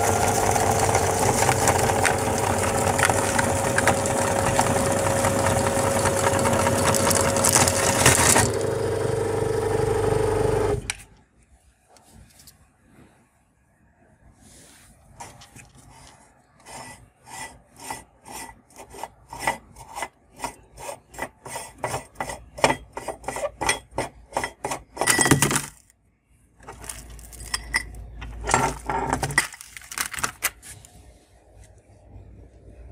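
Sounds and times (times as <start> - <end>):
metal rasping and scraping: 15.2 - 25.1.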